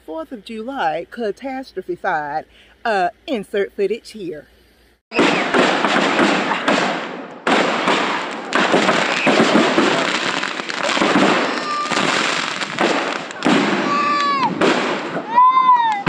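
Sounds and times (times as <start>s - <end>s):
firework whistle: 5.1s - 16.0s
fireworks crackling and popping: 5.1s - 16.0s.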